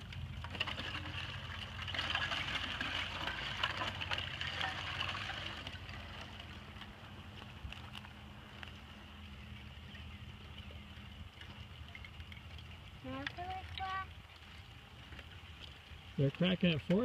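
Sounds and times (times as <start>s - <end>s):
ice floes grinding and crackling: 0.0s - 8.8s.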